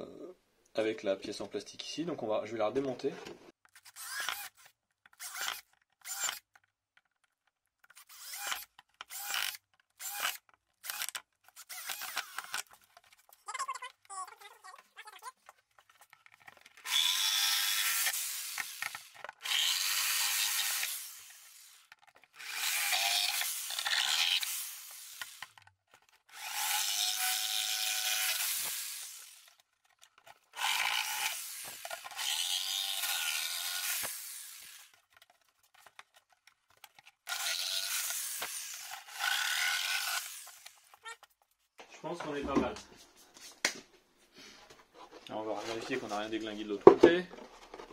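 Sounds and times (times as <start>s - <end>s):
power tool cutting plastic: 3.7s - 6.5s, 7.9s - 12.8s, 16.8s - 41.2s.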